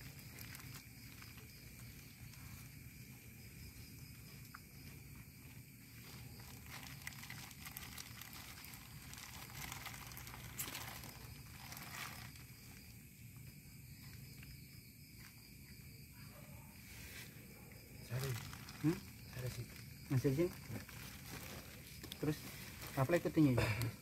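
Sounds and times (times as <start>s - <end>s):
plastic bag crinkling: 0.0s - 1.8s, 6.4s - 12.5s, 18.1s - 23.8s
dry leaves rustling: 0.0s - 2.7s, 5.9s - 12.8s, 18.1s - 23.7s
faint background noise: 0.0s - 24.0s.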